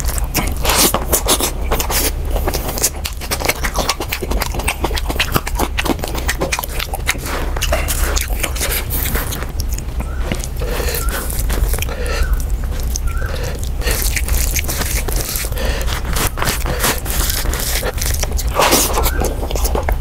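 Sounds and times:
fingers squelching rice and gravy: 0:00.0 - 0:20.0
wet chewing and mouth smacking: 0:00.0 - 0:20.0.

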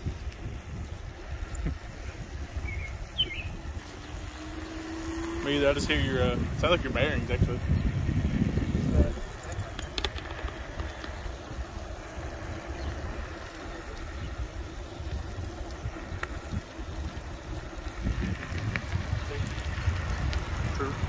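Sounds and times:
electric bike rumble on asphalt: 0:00.0 - 0:21.0
wind buffeting microphone: 0:00.0 - 0:21.0.

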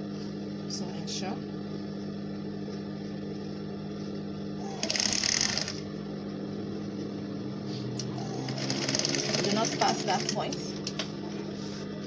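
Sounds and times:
sewing machine motor humming: 0:04.6 - 0:06.0, 0:07.9 - 0:11.4
sewing machine stitching: 0:04.8 - 0:05.8, 0:08.3 - 0:10.7.

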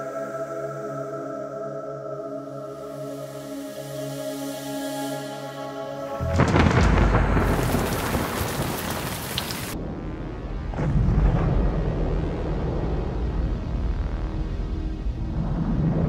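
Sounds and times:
rain hiss: 0:06.2 - 0:09.8
thunderclap and rumble: 0:06.2 - 0:16.0.

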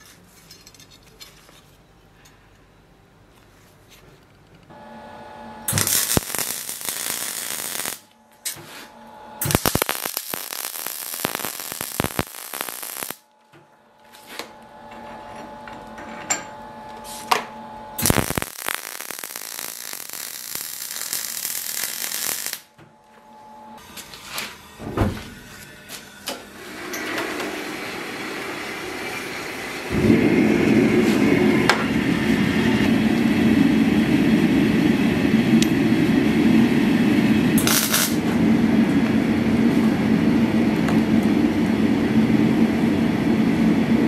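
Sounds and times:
steady hum: 0:04.7 - 0:26.6, 0:27.4 - 0:44.0
welder arc crackling: 0:05.7 - 0:08.6, 0:09.4 - 0:13.3, 0:18.0 - 0:22.7, 0:37.6 - 0:38.3.

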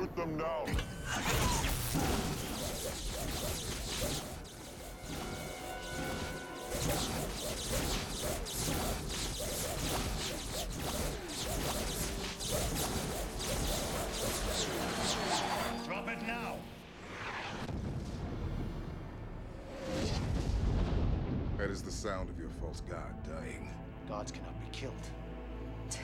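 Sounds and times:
energy weapon blast: 0:00.7 - 0:15.6
whooshes: 0:00.7 - 0:21.6.

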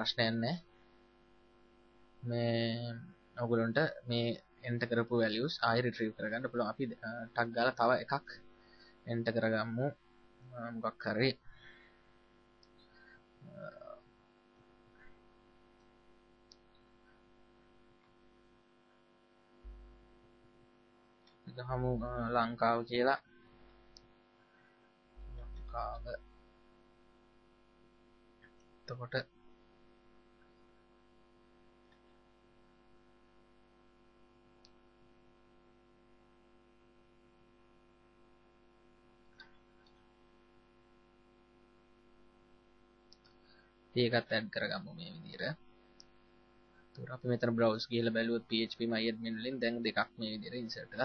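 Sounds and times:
faint electrical hum: 0:00.0 - 0:51.0
faint click: 0:34.6 - 0:34.8.

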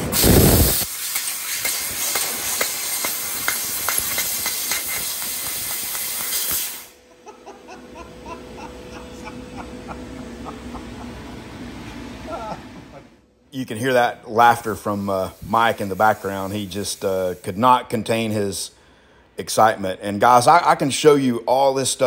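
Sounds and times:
laser cutter gas hiss: 0:00.0 - 0:07.0, 0:14.6 - 0:17.9
faint laughter: 0:07.1 - 0:13.2.

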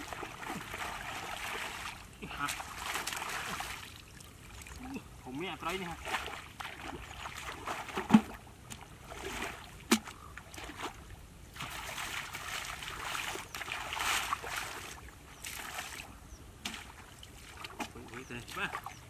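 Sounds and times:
muddy water splashing: 0:00.0 - 0:19.0.

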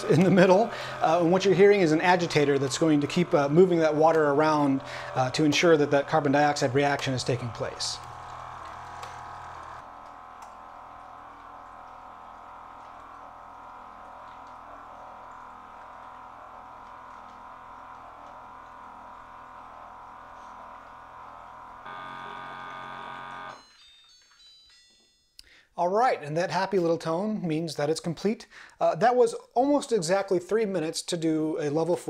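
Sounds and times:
motor humming: 0:00.0 - 0:23.6.

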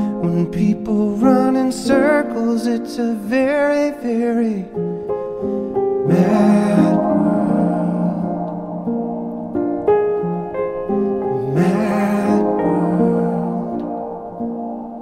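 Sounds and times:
instrumental accompaniment: 0:05.0 - 0:15.0
person singing slow melody: 0:06.0 - 0:15.0.

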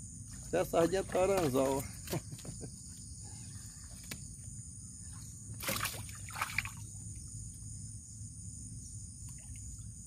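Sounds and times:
crickets and insects droning: 0:00.0 - 0:10.0
water splashing: 0:05.6 - 0:06.9.

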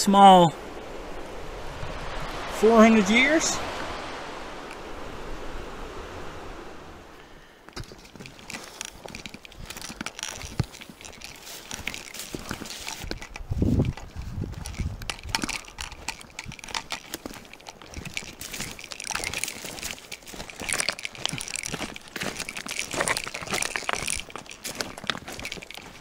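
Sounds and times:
footsteps on gravel: 0:07.7 - 0:26.0.

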